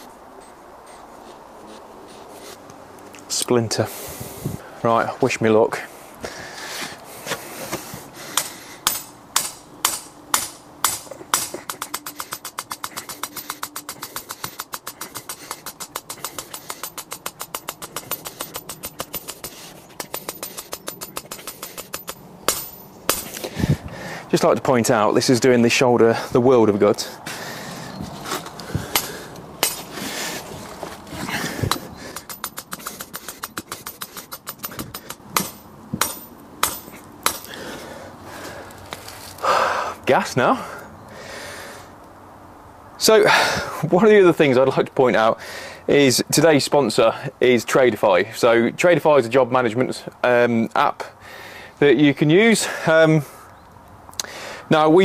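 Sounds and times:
hammer striking steel rod: 0:08.4 - 0:23.4, 0:28.9 - 0:29.9, 0:31.7 - 0:37.5.

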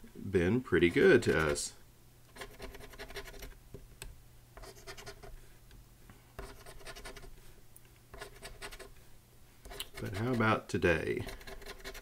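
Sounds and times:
coin scratching lottery ticket: 0:02.4 - 0:03.5, 0:11.3 - 0:12.0.

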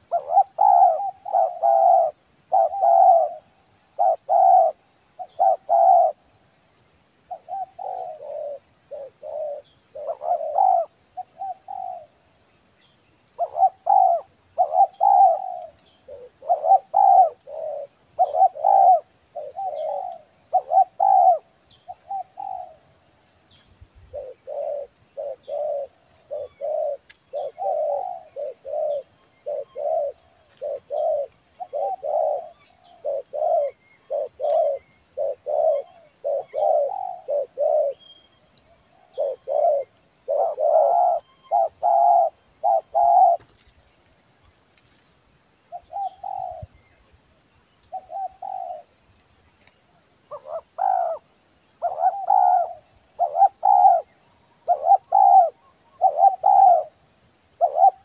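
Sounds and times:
doves cooing: 0:00.0 - 0:06.5, 0:07.1 - 0:12.5, 0:13.2 - 0:47.1, 0:47.8 - 0:58.0.

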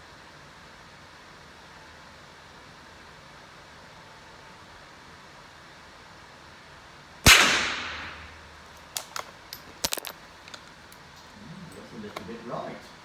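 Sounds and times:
rifle shot echoing: 0:07.2 - 0:08.4.

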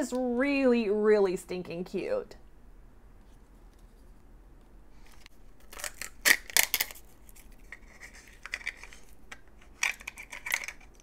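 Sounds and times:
wrapping crinkling: 0:05.0 - 0:11.0.

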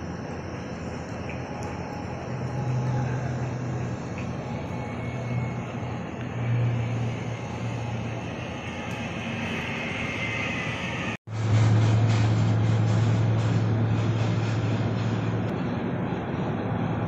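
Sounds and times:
distant turboprop plane taking off: 0:00.0 - 0:17.0.

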